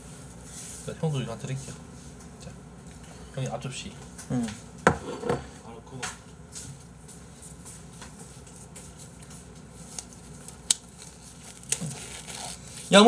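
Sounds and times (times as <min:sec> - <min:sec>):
plastic glove rustling: 0:07.2 - 0:13.0.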